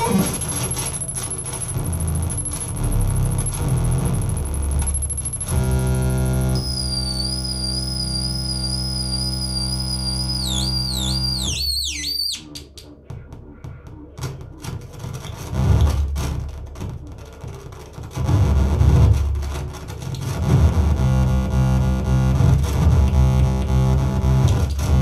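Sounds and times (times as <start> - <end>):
buzzing electronic drone: 0.0 - 25.0
wavering high whistle: 6.6 - 12.5
clicks crackles and scraping noise: 14.2 - 25.0.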